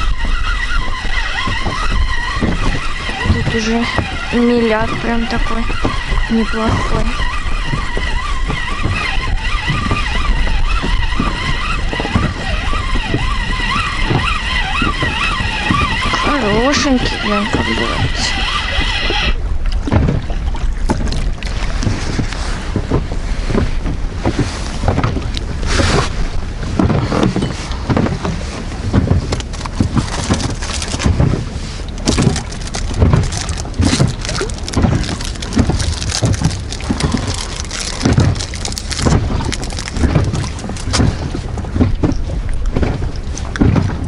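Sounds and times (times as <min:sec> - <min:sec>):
waves lapping against boat: 0:00.0 - 0:44.0
wind buffeting microphone: 0:00.0 - 0:44.0.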